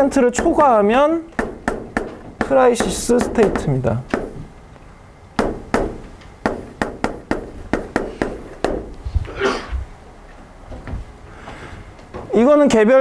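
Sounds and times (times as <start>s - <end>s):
chalk tapping on a blackboard: 1.4s - 4.4s, 5.4s - 8.9s.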